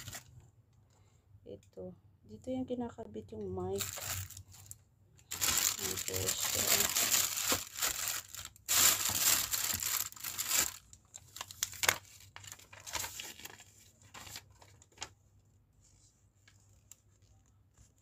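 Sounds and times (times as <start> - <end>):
plastic bag crinkling: 0.0 - 0.3, 3.7 - 15.1.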